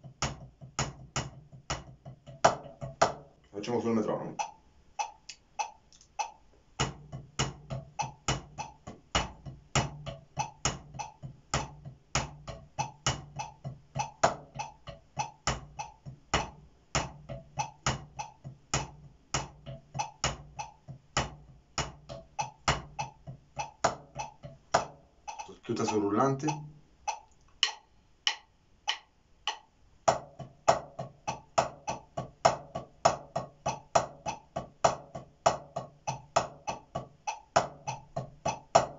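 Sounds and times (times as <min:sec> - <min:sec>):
drumsticks on practice pads: 0:00.0 - 0:38.9
metronome click: 0:21.8 - 0:29.7.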